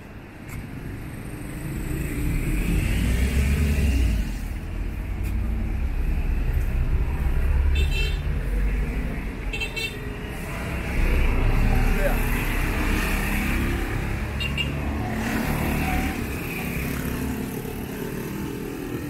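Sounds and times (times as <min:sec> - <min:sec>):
road traffic rumbling: 0:00.0 - 0:19.0.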